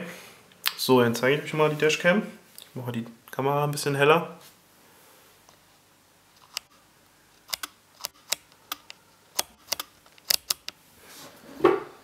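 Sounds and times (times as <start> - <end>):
plastic parts clicking: 7.4 - 10.8.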